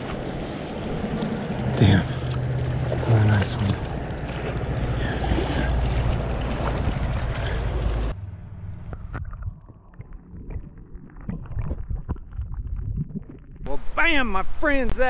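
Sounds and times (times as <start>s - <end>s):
wind buffeting microphone: 2.5s - 8.2s.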